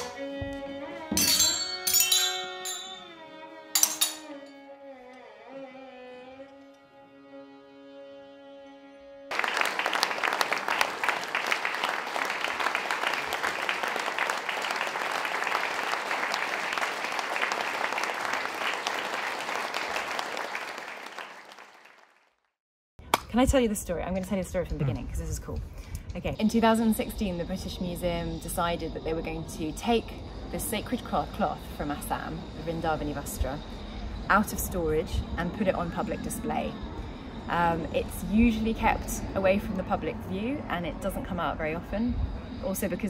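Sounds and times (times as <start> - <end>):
hand cymbals clash: 1.1 - 3.2, 3.8 - 4.6
audience applause: 9.3 - 22.4.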